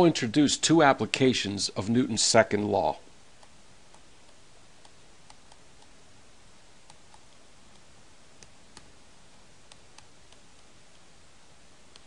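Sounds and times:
low hiss: 0.0 - 12.0.

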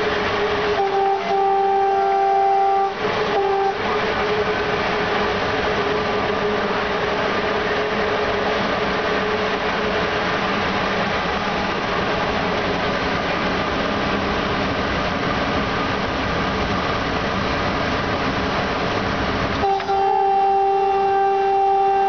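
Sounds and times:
train horn: 0.0 - 4.8, 19.6 - 22.0
locomotive running on rails: 0.0 - 22.0.

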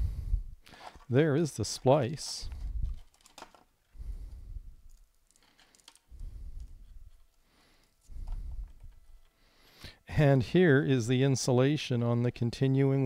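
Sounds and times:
brittle tape crackling being scraped: 4.9 - 6.1.

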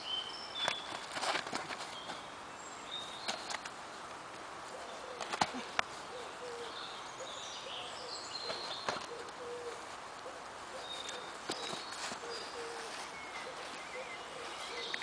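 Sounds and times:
outdoor background noise: 0.0 - 15.0
bird chirps: 10.8 - 15.0.

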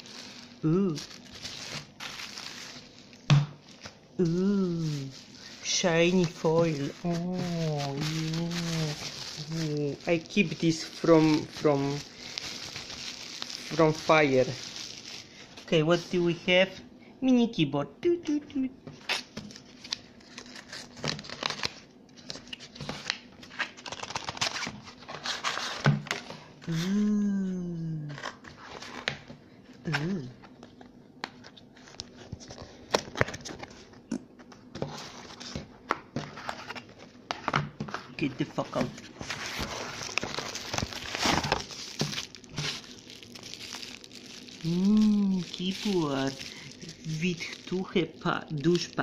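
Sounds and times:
cardboard box rustling and crinkling: 0.0 - 4.0, 4.7 - 15.7, 38.2 - 49.0.

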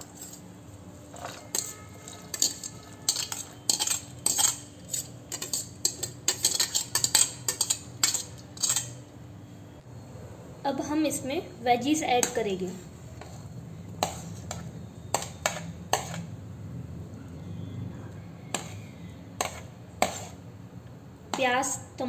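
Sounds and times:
metal spoon scraping a colander: 0.0 - 0.5, 1.1 - 9.0, 13.2 - 16.3, 18.5 - 20.4.

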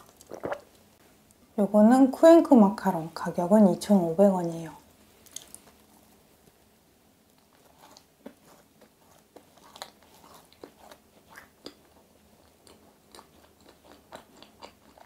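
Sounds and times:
chewing crunchy macaron: 0.0 - 0.8, 7.3 - 15.0.

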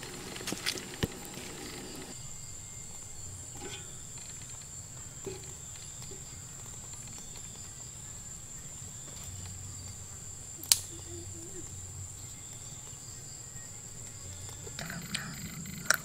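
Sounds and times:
insects droning: 0.0 - 16.0
faint small clicks: 10.6 - 11.0.

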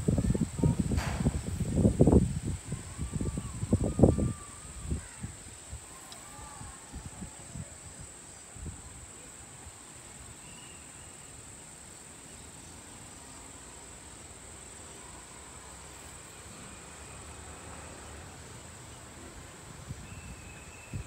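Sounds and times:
crickets chirping: 0.0 - 21.0.

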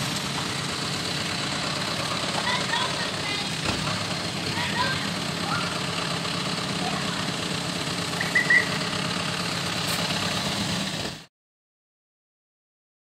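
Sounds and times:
vehicle engine running: 0.0 - 11.3
bird chirps: 8.2 - 8.8.

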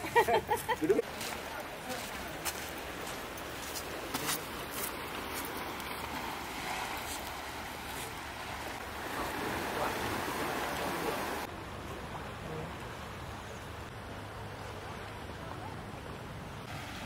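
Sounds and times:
wind: 0.0 - 17.0
surf rushing: 0.8 - 13.2.

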